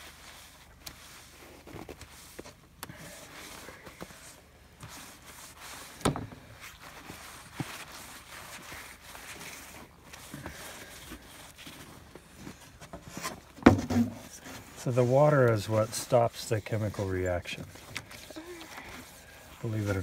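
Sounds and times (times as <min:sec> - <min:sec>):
wet cloth wiping steel plate: 0:13.9 - 0:20.0.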